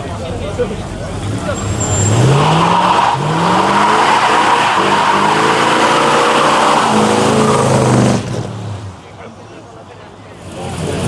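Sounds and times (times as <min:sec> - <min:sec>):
car engine revving: 0:01.0 - 0:09.0.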